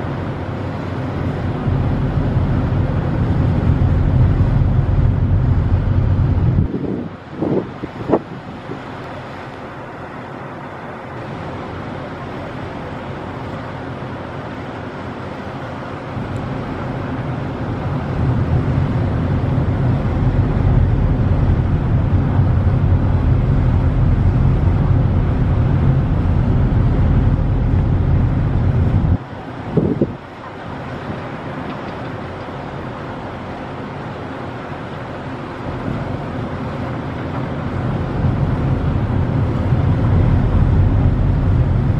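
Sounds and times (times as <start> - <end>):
ship rumble: 0.0 - 41.9
wind noise: 1.3 - 9.0, 16.2 - 31.8, 37.0 - 41.9.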